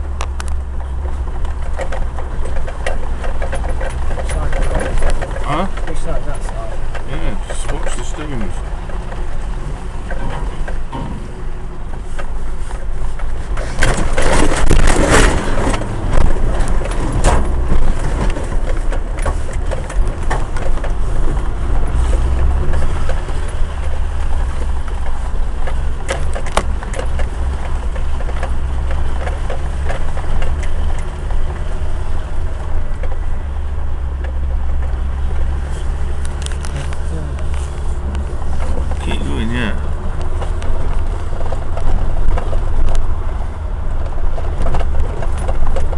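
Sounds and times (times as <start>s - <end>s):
vehicle body rattles and knocks: 0.0s - 45.9s
vehicle engine low drone: 0.0s - 45.9s
crashing noise: 13.6s - 21.5s.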